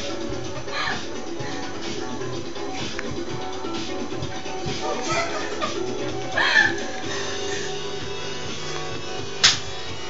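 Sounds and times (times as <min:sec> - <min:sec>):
dance music with steady beat: 0:00.0 - 0:10.0.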